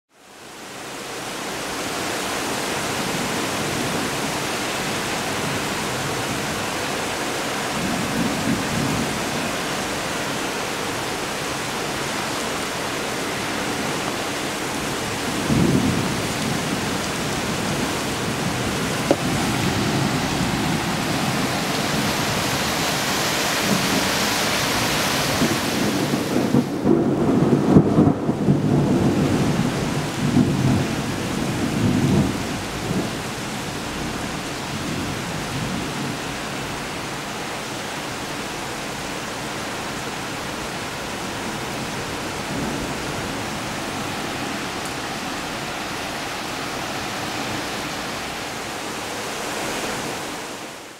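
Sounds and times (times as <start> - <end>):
heavy rain: 0.1 - 50.9
thunder rumbling: 13.6 - 36.9, 40.8 - 48.4.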